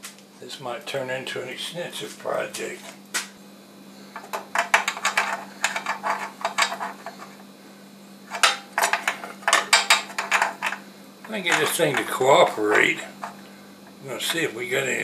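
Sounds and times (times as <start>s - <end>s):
metal tools clicking and rattling: 4.2s - 7.3s, 8.3s - 12.2s.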